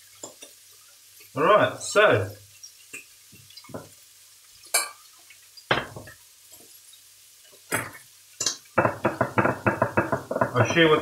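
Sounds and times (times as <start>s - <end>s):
saucepan and utensils clinking: 4.6s - 5.1s, 7.5s - 11.0s.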